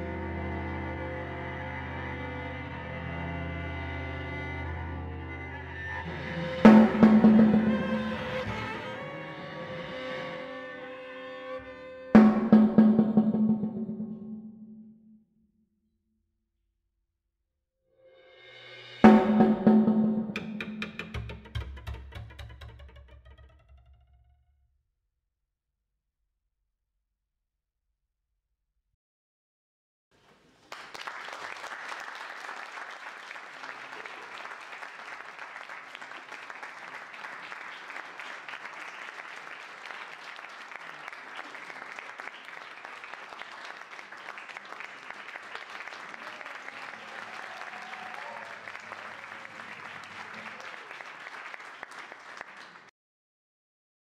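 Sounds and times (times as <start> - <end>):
audience applauding: 6.4 - 9.2, 30.3 - 52.9.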